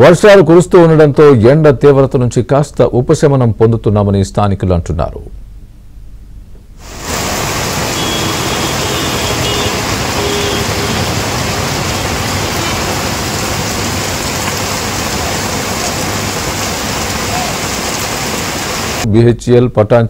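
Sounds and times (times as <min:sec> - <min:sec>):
heavy rain on road: 0:06.8 - 0:19.1
cars driving through water: 0:06.9 - 0:19.0.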